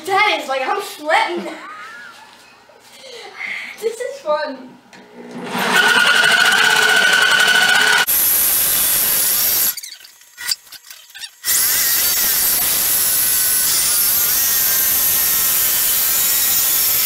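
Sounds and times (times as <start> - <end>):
electric jigsaw cutting wood: 5.2 - 9.8, 11.4 - 17.0.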